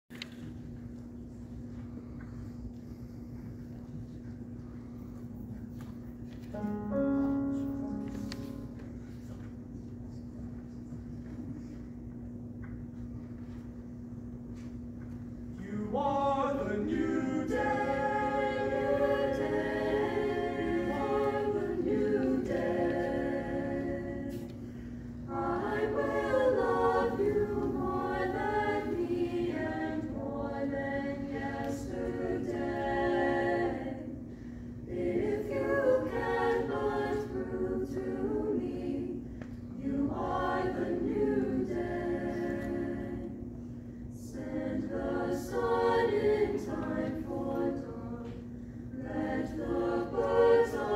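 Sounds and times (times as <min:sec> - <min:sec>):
steady low hum: 0:00.1 - 0:50.9
chamber choir singing a cappella: 0:15.6 - 0:50.9.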